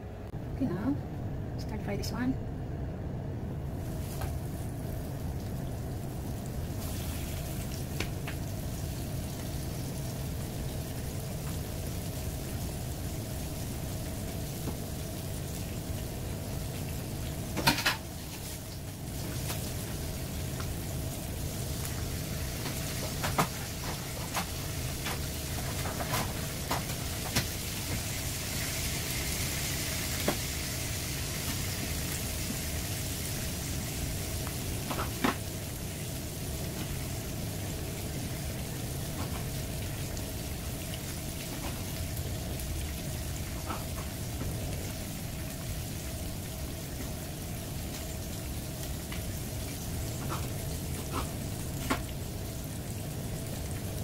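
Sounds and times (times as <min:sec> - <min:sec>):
fish frying in hot oil: 0:03.7 - 0:54.0.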